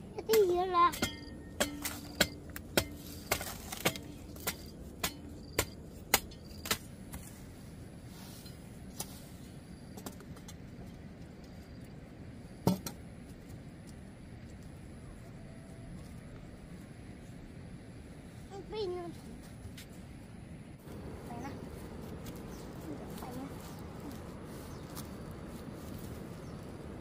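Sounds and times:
hand tool knocking: 0.9s - 6.3s.

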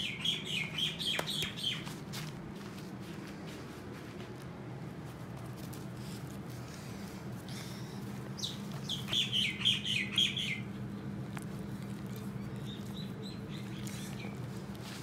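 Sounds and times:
bird chirping: 0.0s - 1.9s, 8.4s - 10.7s, 12.4s - 14.4s
steady low hum: 0.0s - 15.0s.

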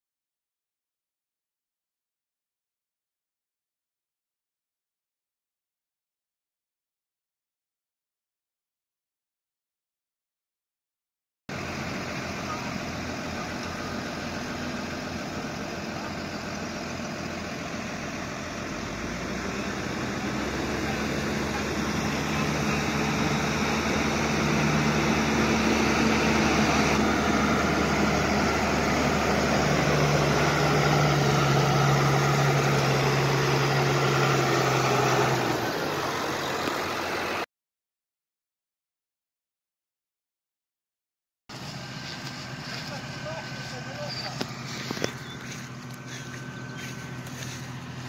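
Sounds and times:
tractor diesel engine revving: 11.5s - 37.5s, 41.5s - 48.0s.

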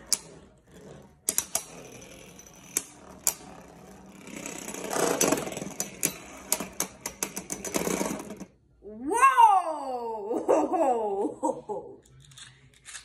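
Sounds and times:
spinning tops grinding together: 0.0s - 8.5s
spinning tops whirring: 0.0s - 8.5s.

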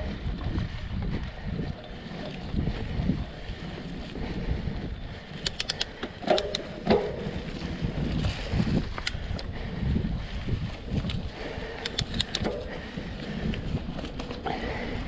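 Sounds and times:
bike tyre rumble on dirt: 0.0s - 15.0s
wind noise on microphone: 0.0s - 15.0s
sharp clicks: 5.3s - 6.8s, 8.9s - 9.5s, 11.7s - 12.7s.

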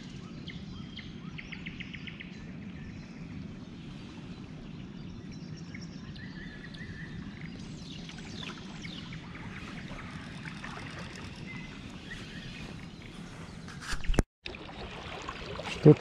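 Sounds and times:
small birds calling: 6.2s - 13.7s.

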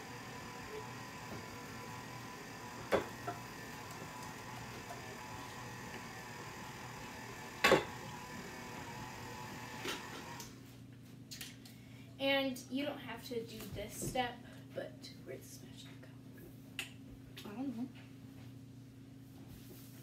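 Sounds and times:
stand mixer humming: 0.0s - 10.5s.

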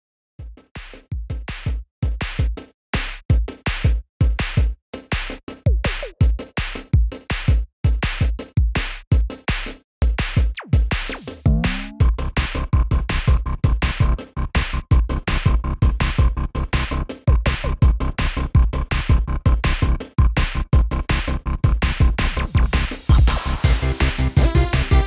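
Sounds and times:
electronic music with drum beat: 0.4s - 25.0s.

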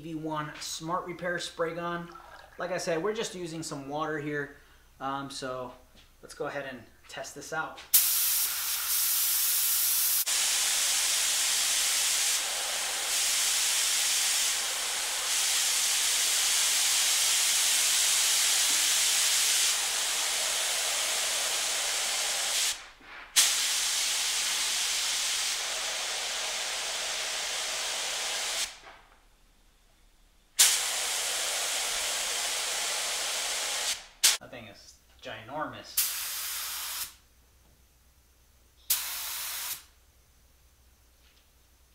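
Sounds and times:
spray gun hissing: 7.9s - 28.8s, 30.6s - 34.4s, 36.0s - 37.2s, 38.9s - 39.9s.

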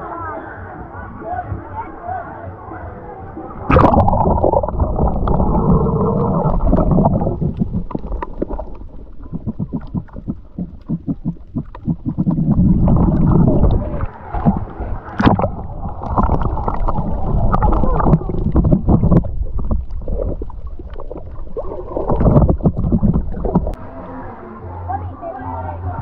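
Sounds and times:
muffled underwater rumbling and gurgling: 3.6s - 24.3s
splash into water: 3.7s - 9.2s, 12.7s - 23.7s.

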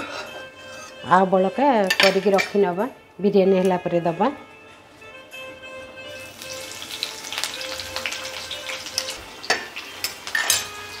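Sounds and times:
cookware clattering: 1.8s - 2.6s, 9.5s - 10.9s
onions sizzling in oil: 6.2s - 11.0s.

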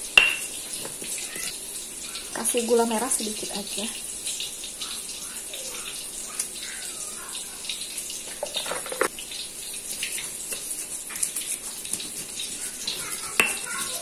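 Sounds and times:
tofu sizzling in hot oil: 0.0s - 14.0s.

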